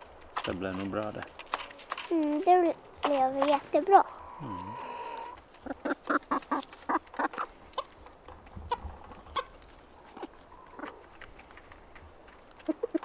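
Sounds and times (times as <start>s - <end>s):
hens clucking: 3.1s - 13.0s.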